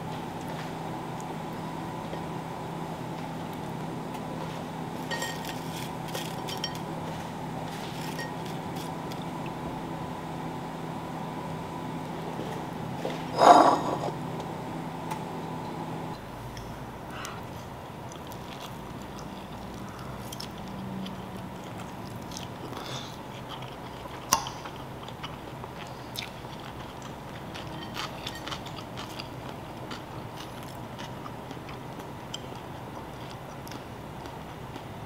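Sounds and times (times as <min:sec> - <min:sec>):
person chewing: 0:18.0 - 0:34.9.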